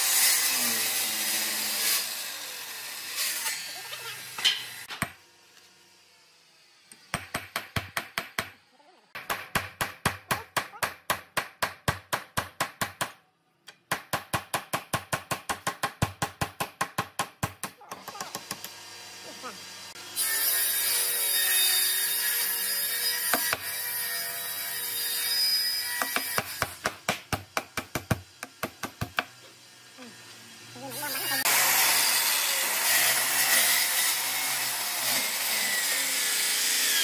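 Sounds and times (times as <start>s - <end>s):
power tool running loudly: 18.3s - 20.2s.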